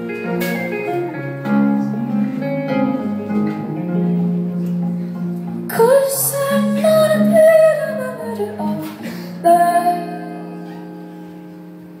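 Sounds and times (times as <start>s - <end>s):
guitar chords: 0.0s - 12.0s
woman singing: 5.7s - 10.9s.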